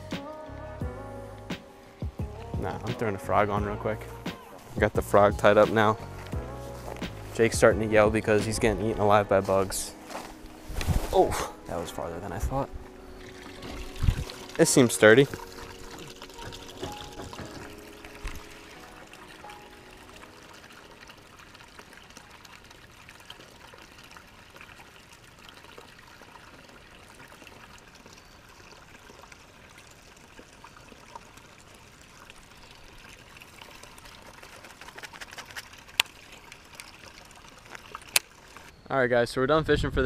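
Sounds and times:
trickle of running water: 11.7 - 38.8.

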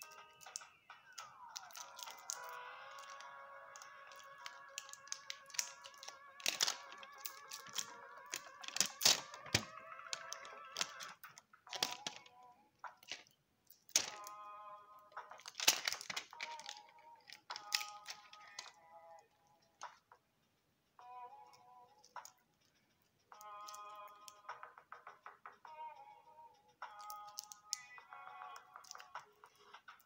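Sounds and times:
quiet background music: 0.0 - 30.0.

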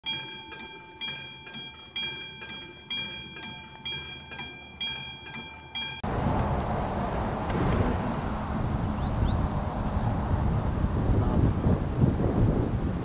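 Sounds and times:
level crossing warning bell: 0.0 - 6.2
outdoor noise: 0.0 - 13.0.

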